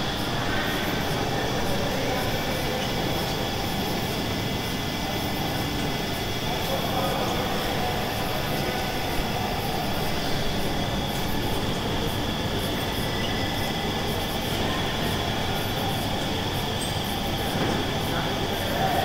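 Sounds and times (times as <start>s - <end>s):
printing press machine drone: 0.0s - 19.0s.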